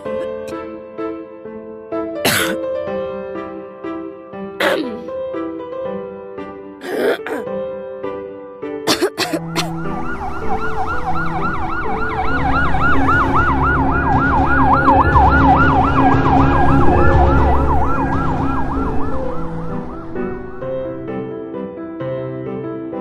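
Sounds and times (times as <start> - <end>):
siren yelping: 9.6 - 20.6.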